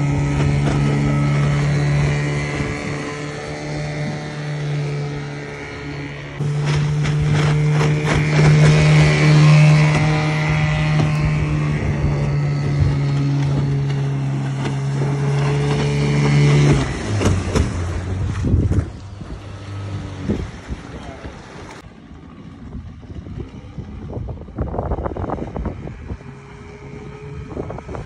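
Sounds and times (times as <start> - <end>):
outboard motor running: 0.0 - 28.0
wind and water rushing: 0.0 - 28.0.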